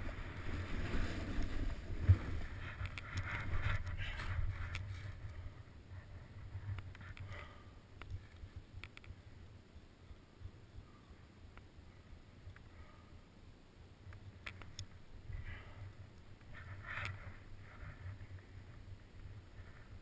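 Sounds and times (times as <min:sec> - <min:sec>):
skis scraping over snow: 0:00.0 - 0:05.2.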